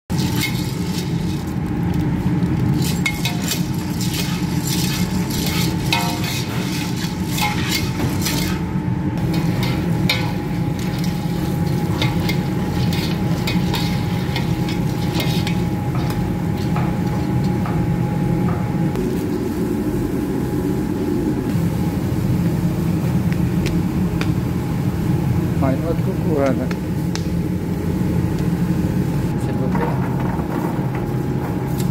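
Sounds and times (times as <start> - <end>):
skimmer scraping steel pot: 0.1 - 1.6, 2.6 - 17.6
popcorn popping: 0.1 - 17.9.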